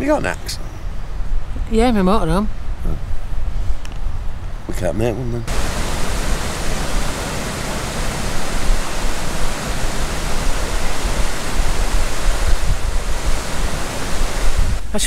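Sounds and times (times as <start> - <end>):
waterfall rushing over rocks: 5.5 - 15.0.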